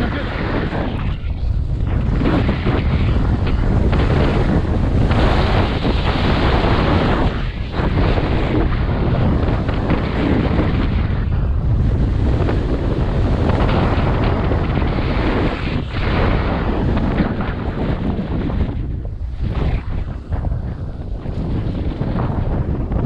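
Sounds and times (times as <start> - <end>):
wind buffeting microphone: 0.0 - 23.0
snowboard scraping packed snow: 1.9 - 10.6.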